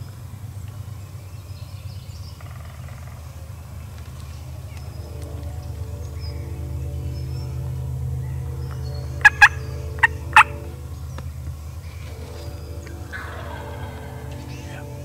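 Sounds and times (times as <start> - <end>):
steady low hum: 0.0 - 15.0
turkey yelping: 9.2 - 10.7, 13.0 - 14.9.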